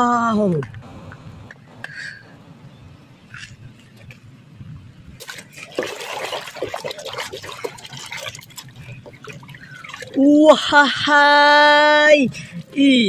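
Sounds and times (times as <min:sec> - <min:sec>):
water sloshing in a basin: 0:05.2 - 0:13.0.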